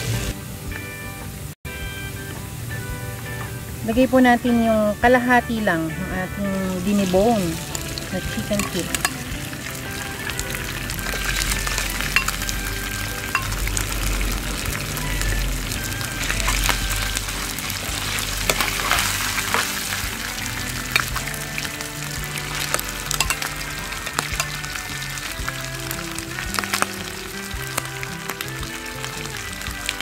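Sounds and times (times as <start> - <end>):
food sizzling in hot oil: 0.0 - 1.4, 4.8 - 30.0
plastic spoon clicking on pan: 8.6 - 9.2, 22.7 - 23.5, 24.2 - 24.6.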